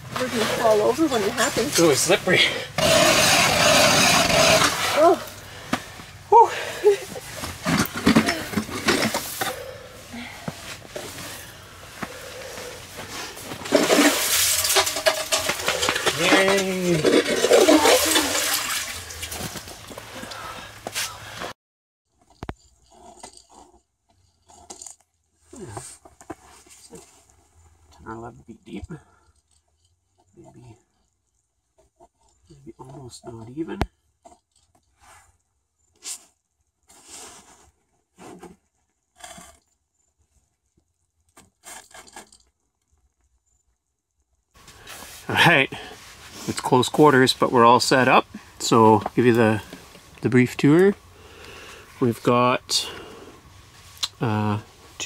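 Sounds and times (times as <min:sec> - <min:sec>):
ice auger scraping and crunching: 0:00.0 - 0:05.5, 0:07.2 - 0:09.6, 0:10.8 - 0:19.9.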